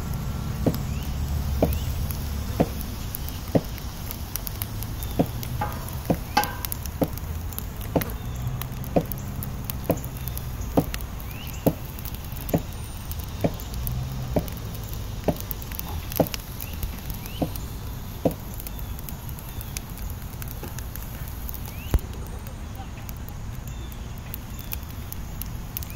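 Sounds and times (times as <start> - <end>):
low steady rumble: 0.0 - 25.9
regular short knocks: 0.6 - 0.9, 1.5 - 1.9, 2.6 - 3.8, 5.2 - 12.7, 13.4 - 17.6.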